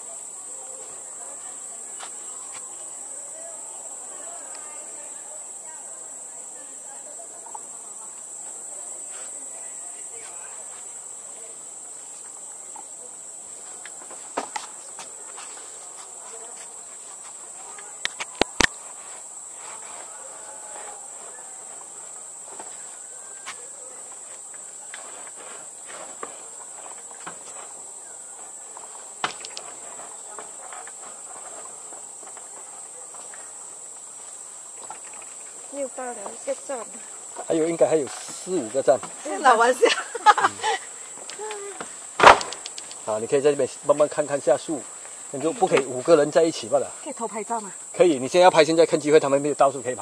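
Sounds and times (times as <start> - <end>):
insects droning: 0.0 - 50.0
sharp knocks: 42.2 - 42.8.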